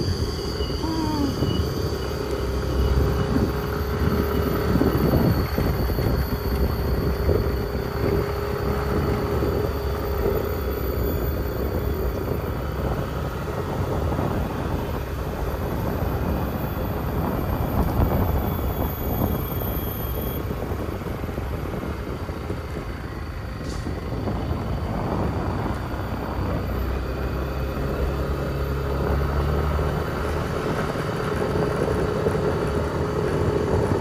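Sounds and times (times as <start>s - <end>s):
vehicle engine rumbling: 0.0s - 34.0s.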